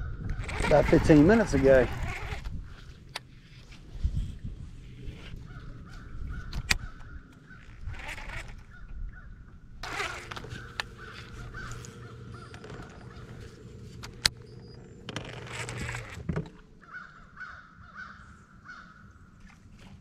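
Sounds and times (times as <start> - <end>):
steady low hum: 0.0 - 19.6
crows cawing: 10.6 - 13.3, 16.8 - 19.2.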